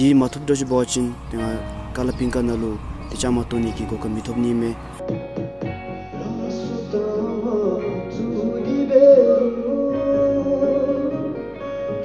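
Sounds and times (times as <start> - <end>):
guitar: 0.0 - 12.0
man singing into microphone: 6.1 - 11.5.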